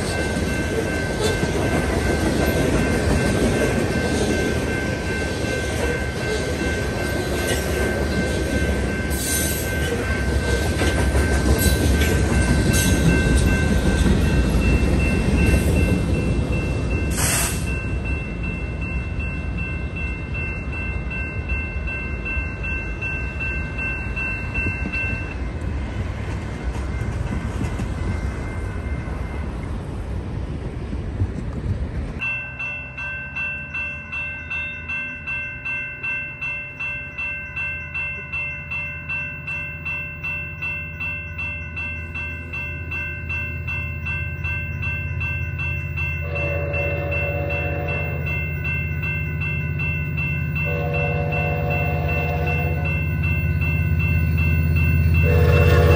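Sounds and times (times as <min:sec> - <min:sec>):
freight train wheels on rail: 0:00.0 - 0:55.9
train horn chord: 0:46.2 - 0:48.4, 0:50.6 - 0:53.0, 0:55.2 - 0:55.9.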